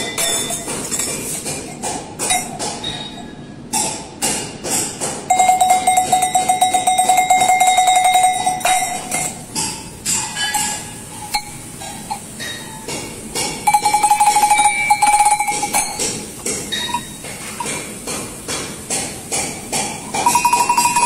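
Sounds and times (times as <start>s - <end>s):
metal bells clinking: 2.3s - 3.3s, 5.3s - 9.6s, 13.7s - 17.8s, 20.1s - 21.0s
bell shaken fast ringing: 5.3s - 9.4s, 13.7s - 16.0s, 20.2s - 21.0s.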